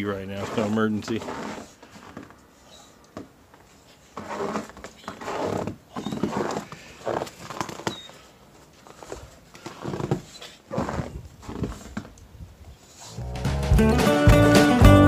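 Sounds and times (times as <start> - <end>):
footsteps crunching in snow: 8.7 - 12.1.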